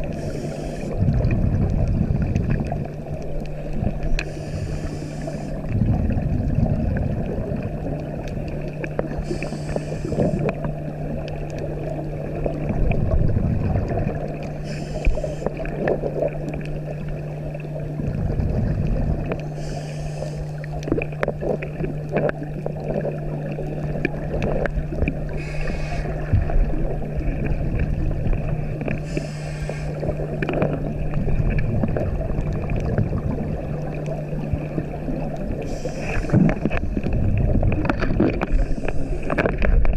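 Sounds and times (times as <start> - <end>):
exhaled bubbles gurgling: 0.0 - 39.9
steady low hum: 0.0 - 39.9
regulator inhalation hiss: 0.1 - 1.0, 4.2 - 5.6, 9.2 - 10.5, 14.6 - 15.5, 19.6 - 20.6, 25.4 - 26.3, 29.0 - 30.0, 35.6 - 36.4.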